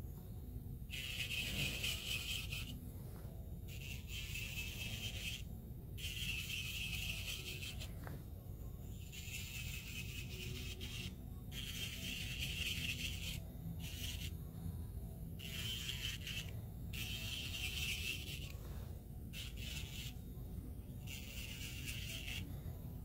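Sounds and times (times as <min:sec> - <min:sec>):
electric nail drill scraping: 0:00.9 - 0:02.8, 0:03.7 - 0:08.2, 0:08.9 - 0:14.4, 0:15.4 - 0:20.2, 0:21.0 - 0:22.6.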